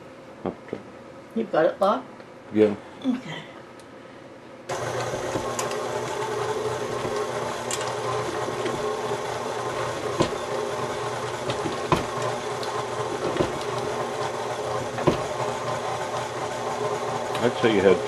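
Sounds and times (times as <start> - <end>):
stand mixer motor running: 4.7 - 18.0
sharp knocks in mixer bowl: 11.4 - 12.2.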